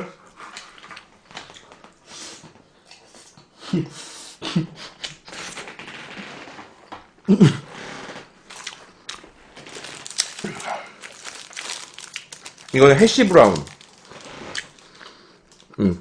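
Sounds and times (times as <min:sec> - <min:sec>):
short voiced hums: 0:15.8 - 0:16.0.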